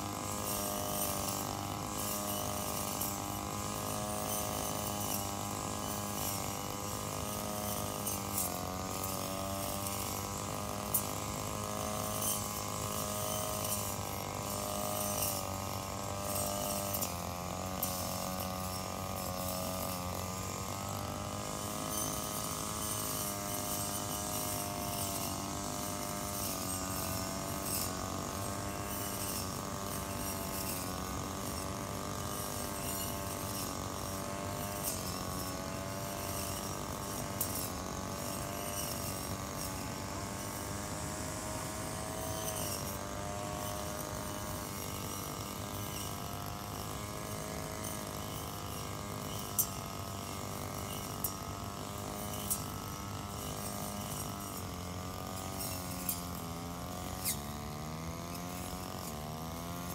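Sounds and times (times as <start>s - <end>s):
brushcutter engine running: 0.0s - 59.9s.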